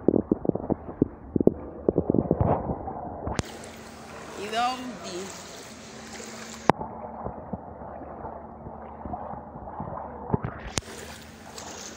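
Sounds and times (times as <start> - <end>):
water sloshing from wading: 0.1 - 11.9.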